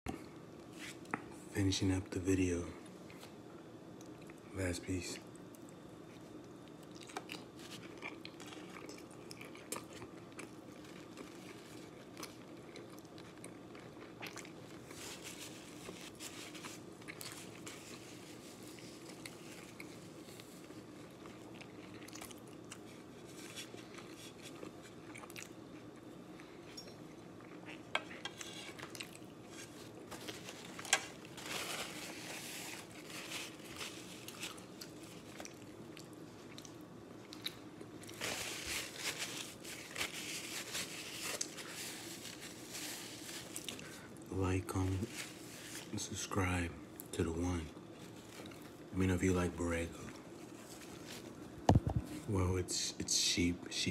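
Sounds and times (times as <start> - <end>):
chewing with wet mouth sounds: 4.0 - 4.5, 5.2 - 15.0, 15.7 - 30.0, 34.2 - 38.2
food crunching: 5.2 - 44.3, 47.8 - 48.9.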